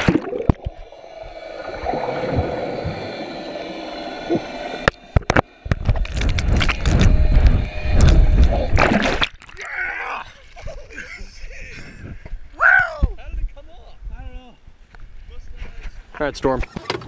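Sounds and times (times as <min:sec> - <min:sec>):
muffled underwater hum: 0:00.0 - 0:09.2
water splashing and gurgling: 0:00.0 - 0:09.8
faint steady tones: 0:00.2 - 0:08.9.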